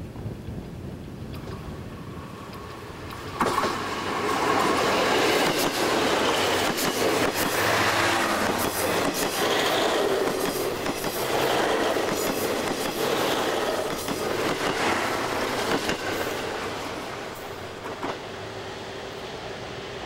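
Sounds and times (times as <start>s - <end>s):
diesel train engine: 2.0s - 20.0s
train wheels clattering over rail joints: 2.5s - 18.3s.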